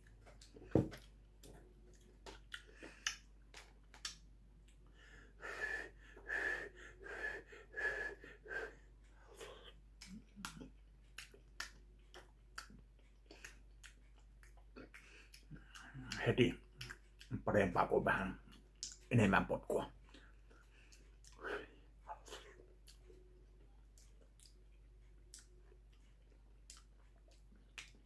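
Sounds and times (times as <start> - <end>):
chewing and mouth noises: 0.0 - 4.8, 9.3 - 17.4, 19.9 - 28.0.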